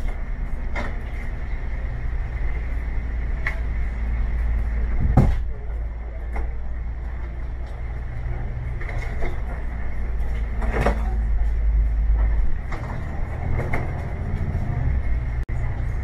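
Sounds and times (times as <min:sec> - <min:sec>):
rattles and knocks of bus fittings: 0:00.0 - 0:01.6, 0:04.9 - 0:07.8, 0:08.7 - 0:14.3
bus engine rumble: 0:00.0 - 0:16.0
heavy clunk: 0:05.0 - 0:05.6.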